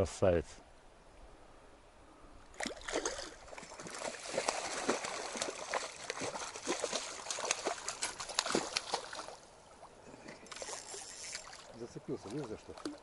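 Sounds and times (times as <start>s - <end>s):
fish splashing in water: 2.6s - 9.4s, 10.2s - 13.0s.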